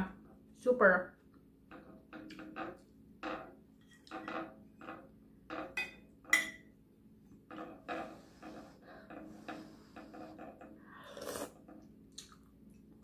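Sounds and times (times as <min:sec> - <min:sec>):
spoon clinking against bowl: 0:05.8 - 0:06.7
sipping and chewing: 0:11.1 - 0:12.8.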